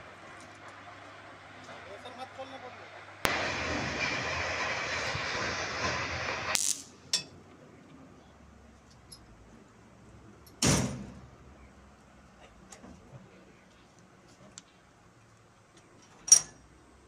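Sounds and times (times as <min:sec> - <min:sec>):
loud steady hiss: 0:01.8 - 0:07.2.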